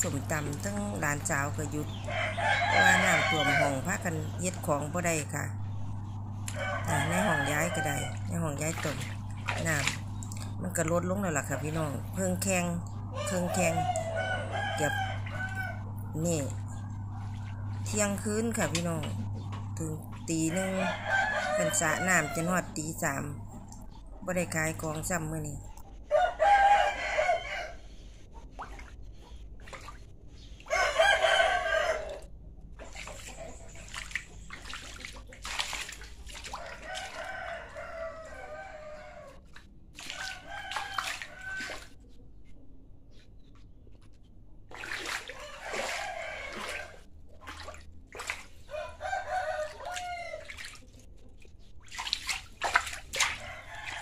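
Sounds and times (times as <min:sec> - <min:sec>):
roosters crowing: 0:00.0 - 0:19.4, 0:20.2 - 0:23.3, 0:26.0 - 0:27.9, 0:30.6 - 0:32.4, 0:36.5 - 0:42.0, 0:45.2 - 0:47.1, 0:48.5 - 0:50.6, 0:53.2 - 0:54.0.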